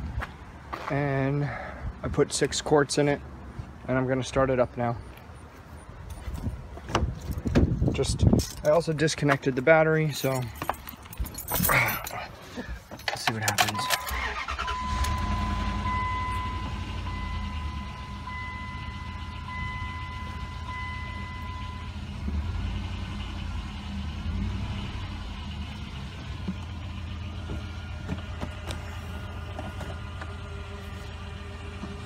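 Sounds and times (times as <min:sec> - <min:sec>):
engine starting and idling: 0:13.4 - 0:20.0
dashboard warning chime: 0:13.5 - 0:22.2.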